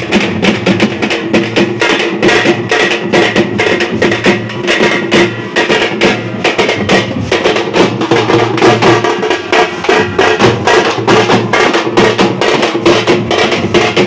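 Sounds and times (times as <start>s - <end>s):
drummers beating drums: 0.0s - 14.0s.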